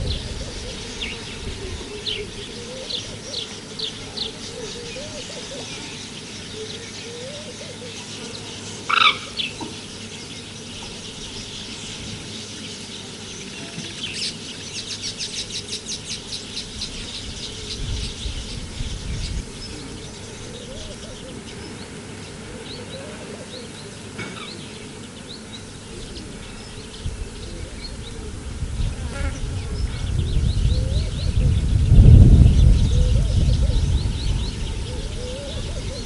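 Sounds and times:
low rumbling noise: 0.0s - 6.7s, 25.0s - 36.0s
wild birds chirping: 0.0s - 36.0s
bird trill: 2.0s - 21.8s.

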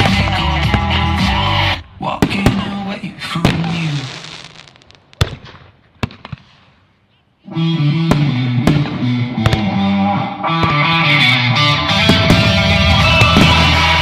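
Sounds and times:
rock music with electric guitar: 0.0s - 1.9s, 7.5s - 14.0s.

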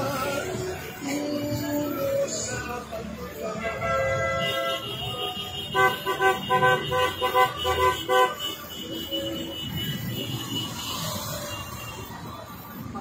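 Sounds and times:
slow street traffic rumble: 0.0s - 13.0s
car horns honking: 3.4s - 12.3s.

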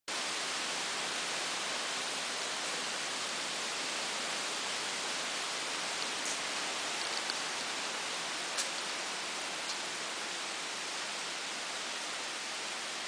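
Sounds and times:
steady hiss: 0.1s - 13.0s
faint ticks: 6.0s - 7.7s.

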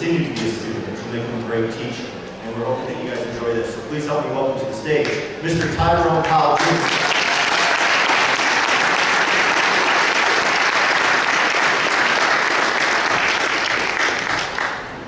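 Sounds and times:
audience applauding: 6.2s - 15.0s.

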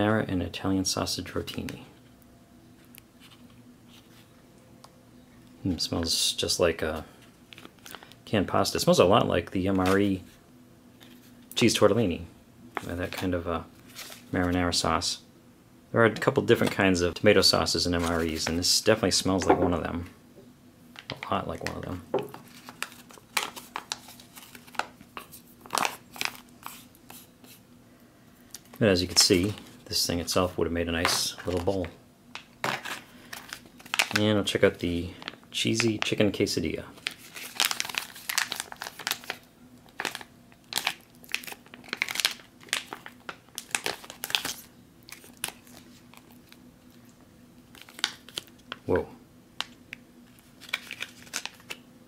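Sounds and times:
food pouch crinkling: 22.4s - 25.0s, 31.4s - 34.4s, 37.0s - 47.1s, 47.7s - 48.8s, 49.6s - 51.8s.

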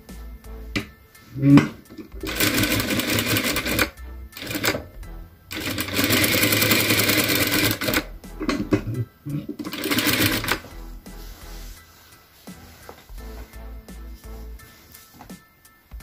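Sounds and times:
sewing machine stitching: 1.6s - 4.8s, 5.5s - 8.1s, 9.6s - 10.6s.

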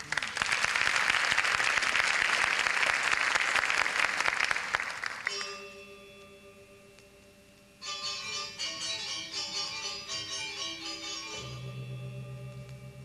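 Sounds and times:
audience applauding: 0.0s - 5.4s
sustained ringing tone: 5.3s - 13.0s.

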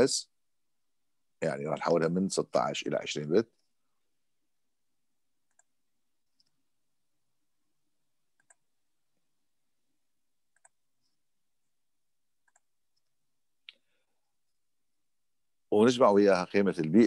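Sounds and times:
computer mouse clicking: 5.4s - 6.5s, 8.3s - 8.7s, 10.5s - 10.8s, 12.4s - 13.1s.

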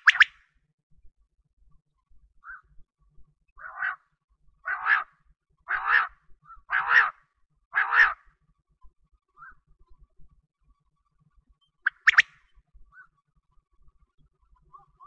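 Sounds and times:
quail calling: 0.0s - 0.3s, 2.4s - 2.7s, 3.6s - 4.0s, 4.6s - 5.1s, 5.7s - 8.2s, 11.9s - 12.3s.

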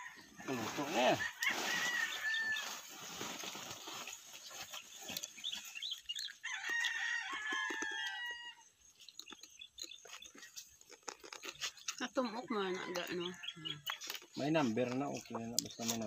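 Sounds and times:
rooster crowing: 0.0s - 2.9s, 6.4s - 8.7s, 12.4s - 13.9s.

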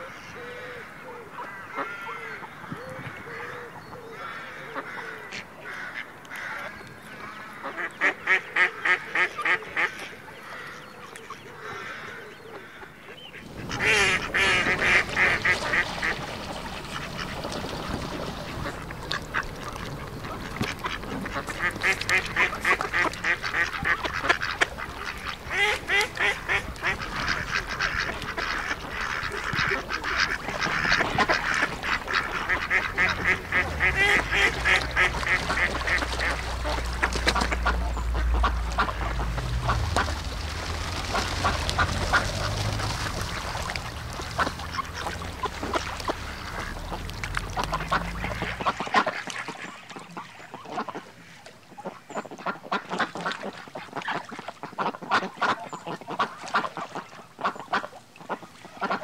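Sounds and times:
water: 0.0s - 59.0s
wind: 0.0s - 59.0s
geese honking: 3.1s - 51.4s
duck calling: 7.6s - 49.7s.

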